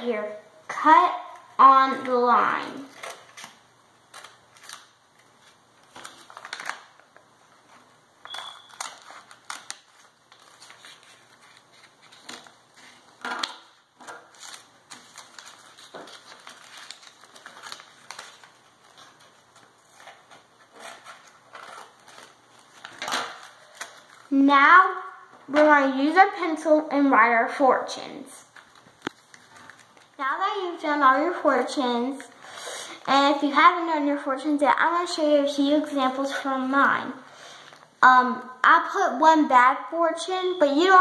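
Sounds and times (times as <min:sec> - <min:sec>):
paper rustling: 0:02.8 - 0:24.4, 0:28.4 - 0:30.2.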